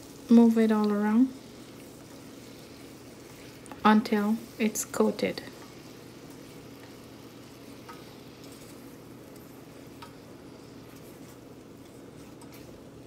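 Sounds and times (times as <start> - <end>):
faint sizzling in a saucepan: 0.0 - 13.0
wooden spoon stirring: 7.8 - 13.0.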